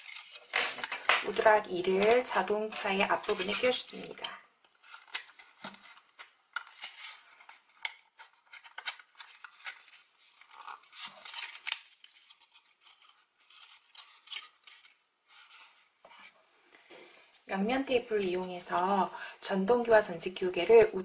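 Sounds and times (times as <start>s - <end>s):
foam board scratching and creaking: 3.1s - 4.2s.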